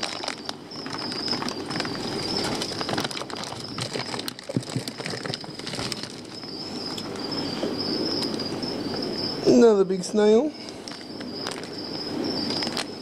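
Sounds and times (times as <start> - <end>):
plastic bags crinkling: 0.0 - 7.1, 10.8 - 11.8, 12.5 - 12.9
steady high-pitched whine: 0.0 - 13.0.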